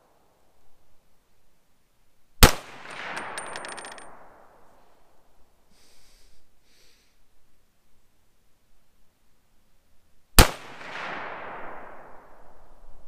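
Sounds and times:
rifle shot with echo: 2.4s - 4.5s, 10.4s - 12.7s.

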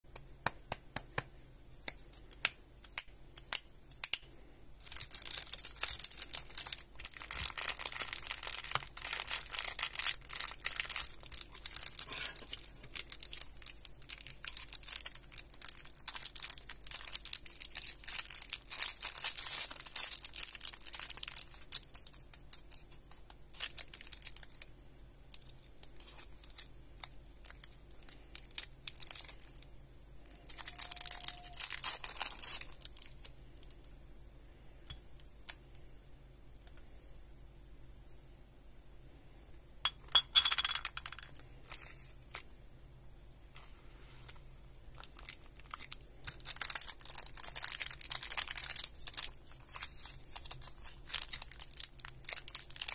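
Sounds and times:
cellophane wrapper crinkling: 2.2s - 24.7s, 25.3s - 33.9s, 40.9s - 42.5s, 43.6s - 52.9s.

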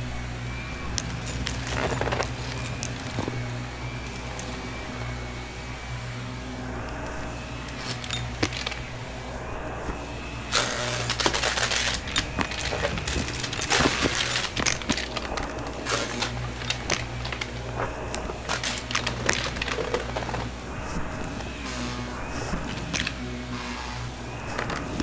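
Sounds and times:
debris crackling in vacuum: 0.0s - 25.0s
vacuum cleaner humming: 0.0s - 25.0s.

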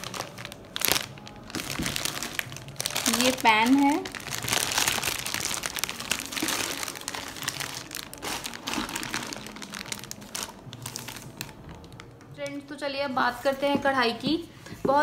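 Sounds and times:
plastic wrapping crinkling: 0.0s - 12.4s.

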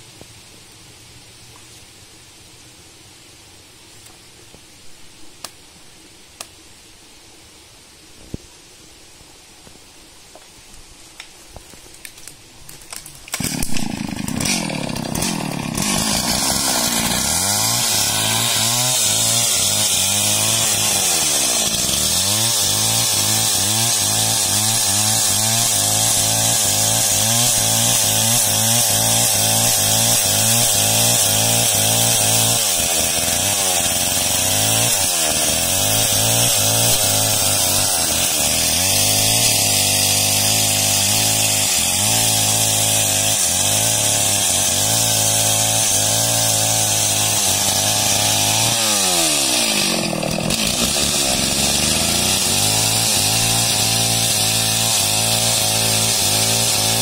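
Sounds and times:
chainsaw cutting log: 12.7s - 57.0s.

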